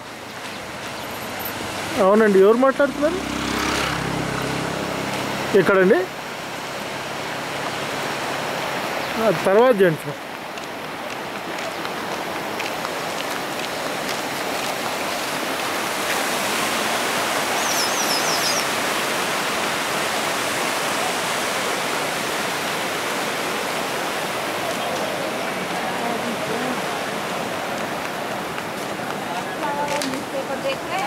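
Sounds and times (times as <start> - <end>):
stream rushing over rocks: 0.0 - 31.0
high chirps: 17.6 - 18.7.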